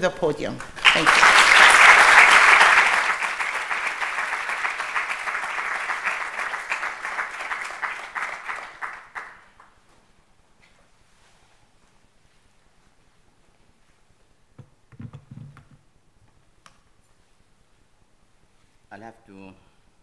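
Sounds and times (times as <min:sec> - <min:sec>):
audience applauding: 0:00.6 - 0:09.8.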